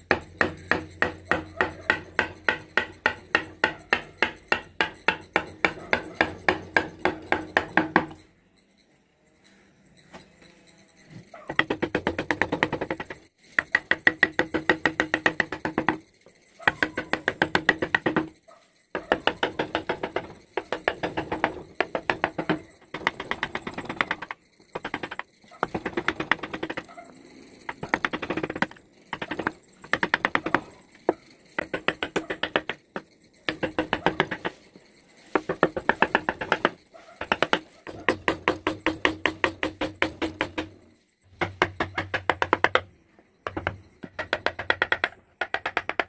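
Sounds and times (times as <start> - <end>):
music with tapping percussive beat: 11.5 - 16.0, 31.6 - 32.8, 35.4 - 40.8.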